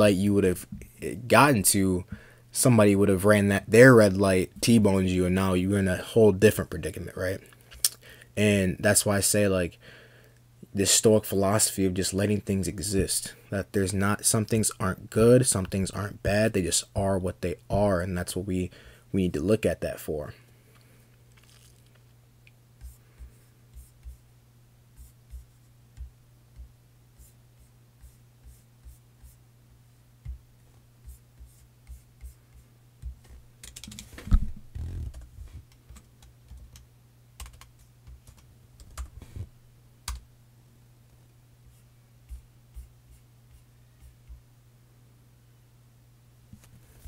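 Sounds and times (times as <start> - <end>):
steady low hum: 0.0 - 47.0
rustling bump: 33.1 - 35.6
computer keyboard typing: 33.6 - 34.0, 37.4 - 39.1.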